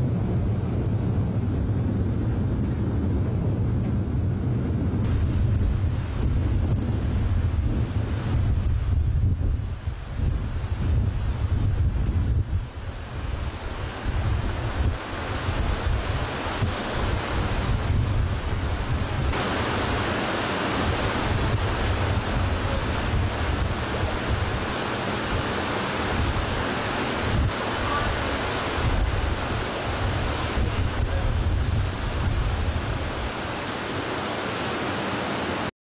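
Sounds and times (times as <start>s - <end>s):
wind buffeting microphone: 0.0s - 35.7s
floodwater splashing against hulls: 12.6s - 35.7s.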